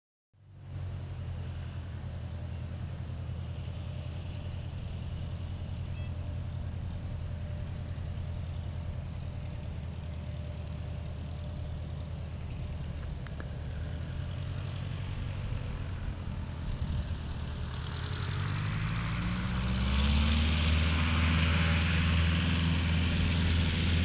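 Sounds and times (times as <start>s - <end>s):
distant propeller engine droning: 0.4s - 24.0s.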